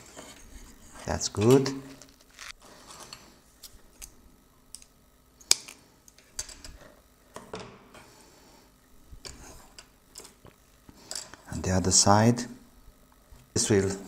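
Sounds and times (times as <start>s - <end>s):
wire rustling: 1.4s - 2.6s.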